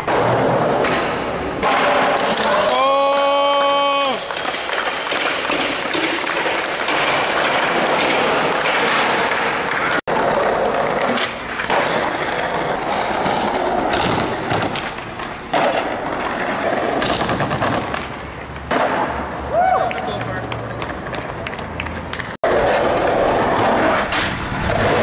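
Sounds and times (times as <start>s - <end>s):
skateboard wheels rolling on concrete: 0.0s - 25.0s
skateboard knocking on ground: 4.3s - 10.3s, 11.0s - 12.8s, 13.8s - 19.2s.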